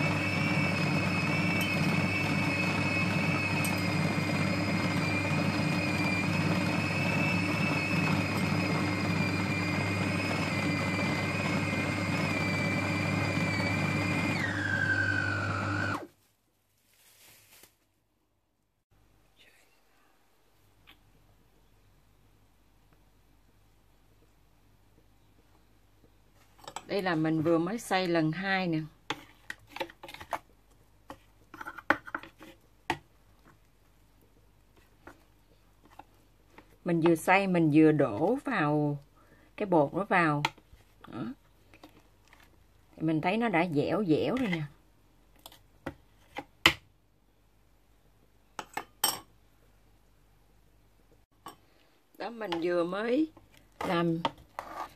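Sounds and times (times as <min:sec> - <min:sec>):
food processor motor whining: 0:00.0 - 0:16.1
metal spoon scraping plastic bowl: 0:29.1 - 0:30.5, 0:31.1 - 0:32.6, 0:53.8 - 0:54.9.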